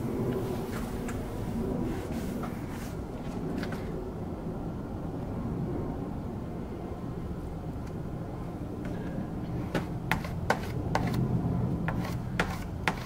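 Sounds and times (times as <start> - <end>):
steady low hum: 0.0 - 13.0
body filler scraping on car fender: 9.8 - 11.2, 11.9 - 13.0.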